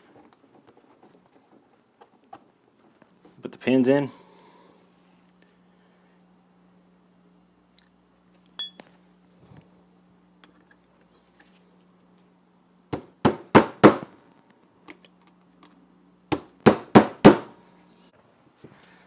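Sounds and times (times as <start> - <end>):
metallic clink with short ring: 8.6 - 8.8.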